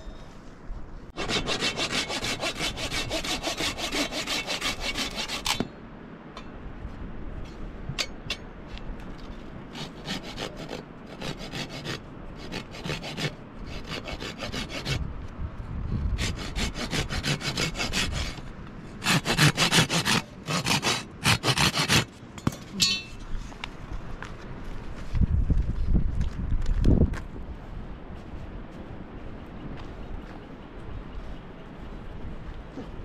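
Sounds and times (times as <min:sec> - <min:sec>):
hand saw cutting wood: 0:01.2 - 0:05.7, 0:09.7 - 0:15.0, 0:16.2 - 0:22.2.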